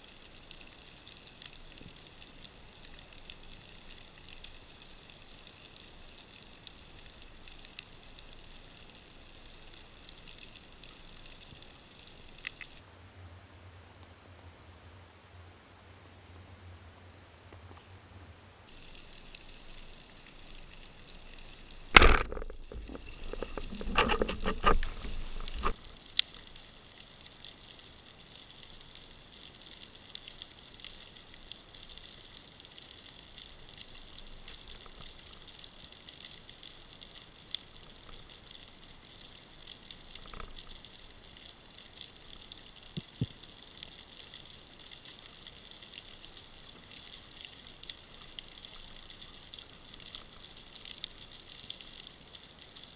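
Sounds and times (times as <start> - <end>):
faint underwater crackling hiss: 0.0 - 52.9
isolated ticks: 0.2 - 13.0, 17.4 - 52.9
sharp knock: 22.0 - 22.5.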